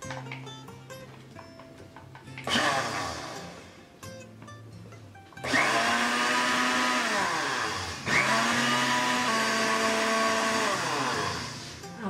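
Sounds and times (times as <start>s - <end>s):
blender motor blending liquid: 2.4s - 3.7s, 5.4s - 11.9s.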